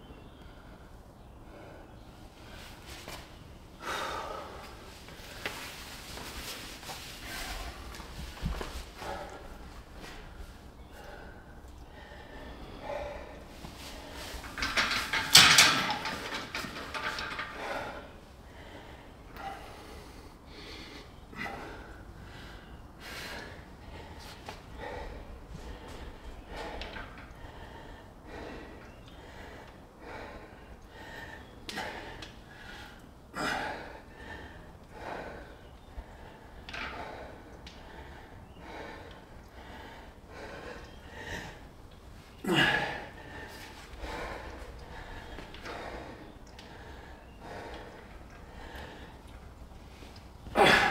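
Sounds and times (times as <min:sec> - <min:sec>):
man breathing hard: 0:00.4 - 0:50.9
man grunting with effort: 0:50.5 - 0:50.9.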